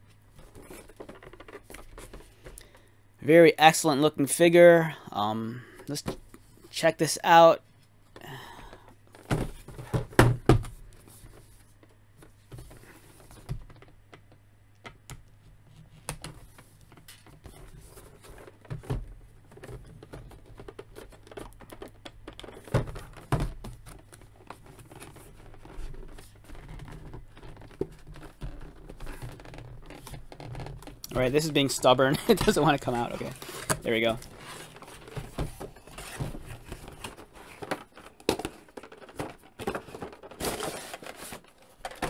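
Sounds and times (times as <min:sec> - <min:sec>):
knocks on cardboard box: 0:09.3 - 0:10.7.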